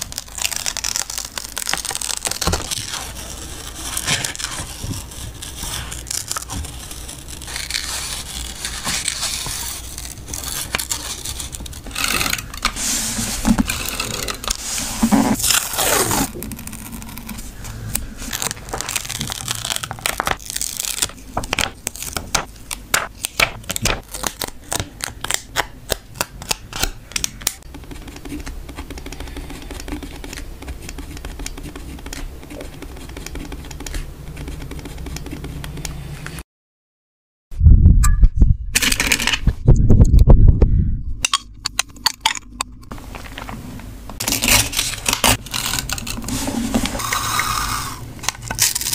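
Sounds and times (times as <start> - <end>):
stickers peeled off plastic sheet: 0.0 - 12.8, 13.4 - 35.2
scissors cutting card: 21.5 - 36.0
pen scratching on paper: 27.7 - 35.7.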